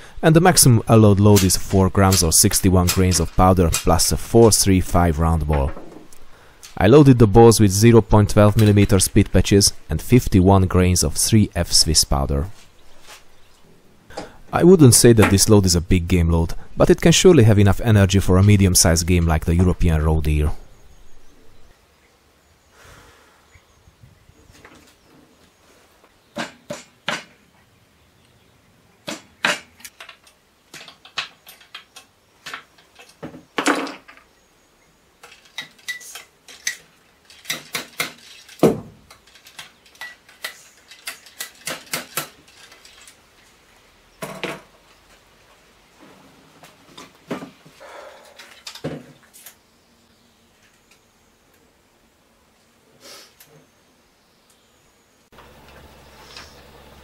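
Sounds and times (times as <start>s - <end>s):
percussion caps clicking on: 1.2s - 4.6s, 39.1s - 42.9s.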